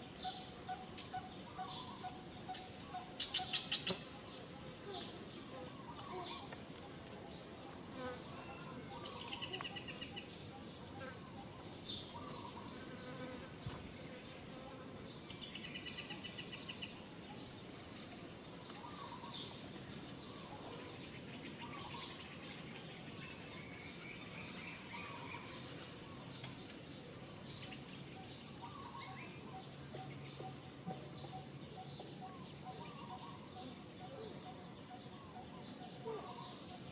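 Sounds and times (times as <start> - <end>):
insect and bird chirping: 0.0 - 12.8, 15.2 - 36.9
steady background hiss: 0.0 - 36.9.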